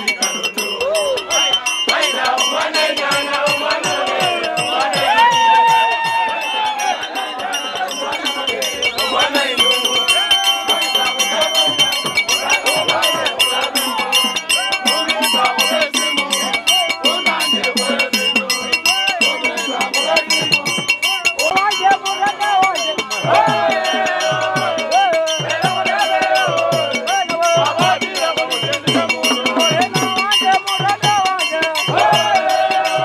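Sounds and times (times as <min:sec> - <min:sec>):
crowd noise: 0:00.0 - 0:33.0
shaker and bell rhythm: 0:00.0 - 0:33.0
voices singing or chanting: 0:00.0 - 0:33.0.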